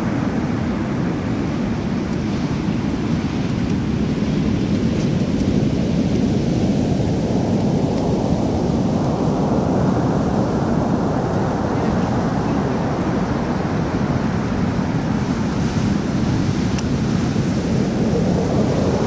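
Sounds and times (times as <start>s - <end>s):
ocean surf breaking: 6.3s - 19.0s.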